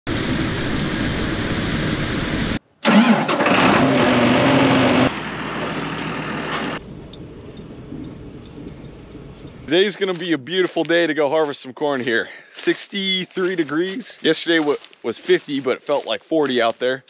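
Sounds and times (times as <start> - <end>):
tractor diesel engine starting: 0.1 - 9.6
steady engine noise: 3.4 - 9.7.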